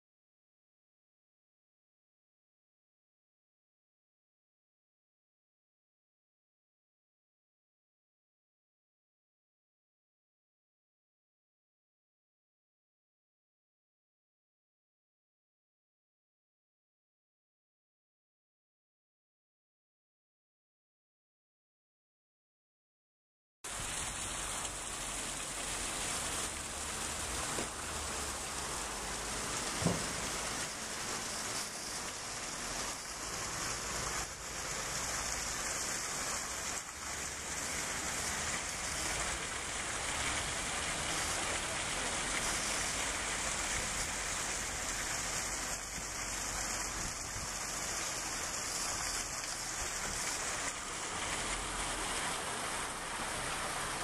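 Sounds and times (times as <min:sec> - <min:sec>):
street ambience hiss and rumble: 0:23.7 - 0:54.0.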